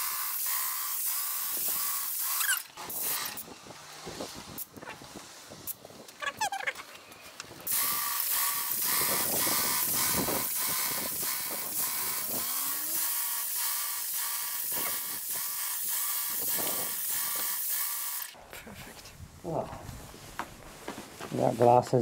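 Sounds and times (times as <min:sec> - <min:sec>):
hiss of paint spraying: 0:00.0 - 0:03.4, 0:07.7 - 0:18.4
paint sprayer pump clatter: 0:00.0 - 0:03.6, 0:05.7 - 0:18.4.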